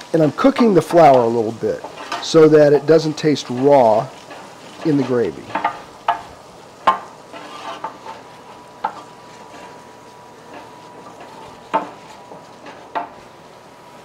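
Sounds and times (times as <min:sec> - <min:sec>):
soft sizzle: 0:00.0 - 0:14.0
wooden spoon scraping metal pan: 0:00.6 - 0:09.8
spoon knocking against pan: 0:05.5 - 0:07.1.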